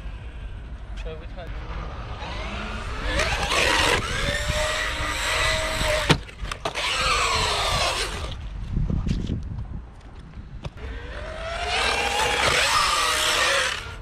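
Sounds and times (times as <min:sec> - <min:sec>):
electric motor whining: 0:02.0 - 0:08.4, 0:10.8 - 0:14.0.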